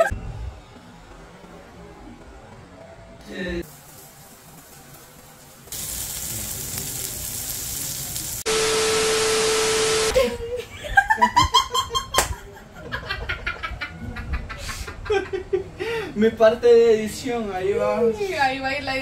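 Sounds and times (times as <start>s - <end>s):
food sizzling on a griddle: 3.6s - 10.0s
man and woman laughing: 10.1s - 15.9s.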